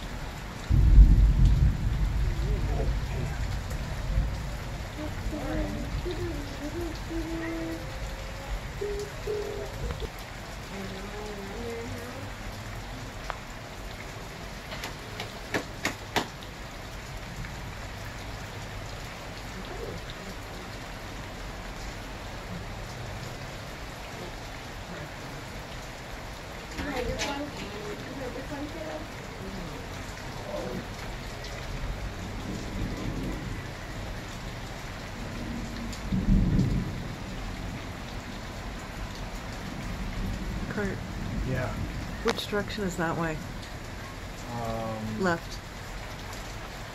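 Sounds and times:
steady rain: 0.0s - 46.9s
thunder rumbling: 0.7s - 10.1s, 26.6s - 34.6s, 35.2s - 43.9s.

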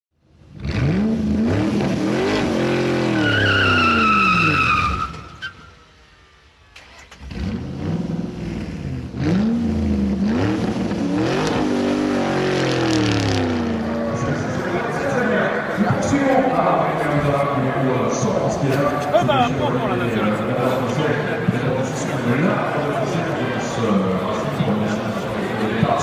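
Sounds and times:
car engine revving: 0.4s - 18.7s
tyre squeal: 3.1s - 5.8s.

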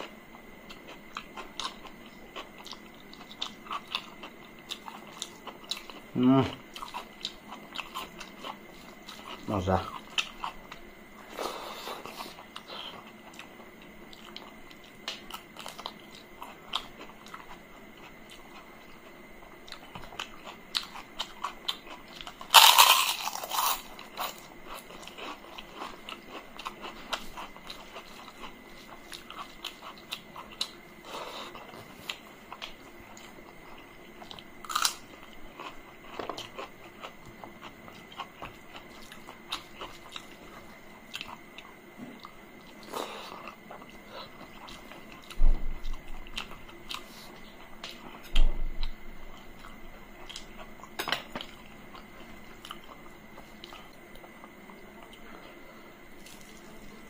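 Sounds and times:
wet chewing and smacking: 12.0s - 55.6s
crunching of crisp flatbread: 19.8s - 30.8s.

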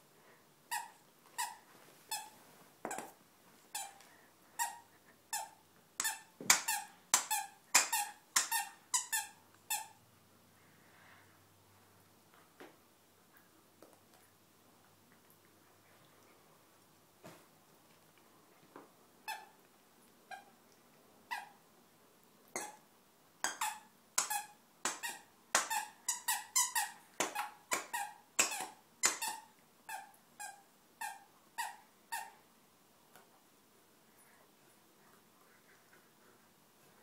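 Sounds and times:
squeaky toy squeaking: 0.7s - 2.4s, 3.7s - 4.0s, 4.6s - 10.0s, 21.3s - 21.6s, 22.6s - 22.8s, 23.4s - 32.4s.

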